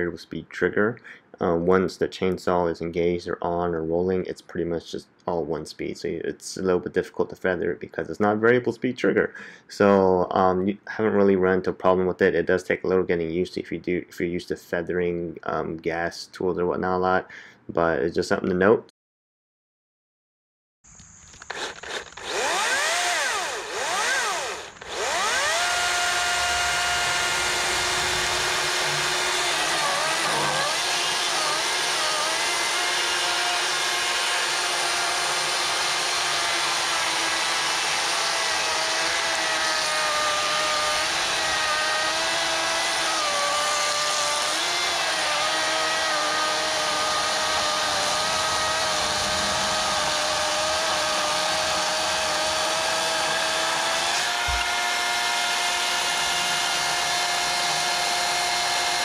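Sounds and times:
electric chainsaw cutting log: 21.3 - 59.0.

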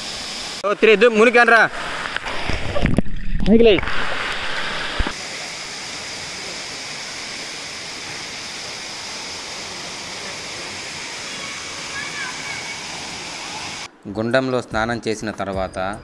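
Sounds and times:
waterfall into rock pool: 0.0 - 13.9
water splashing: 1.3 - 13.9.

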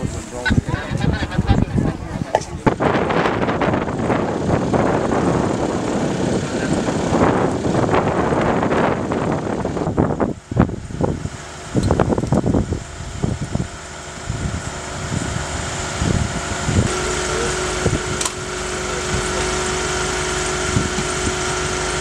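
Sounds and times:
machine hum: 0.0 - 22.0
steady whine: 0.0 - 22.0
wind on microphone: 0.0 - 22.0.

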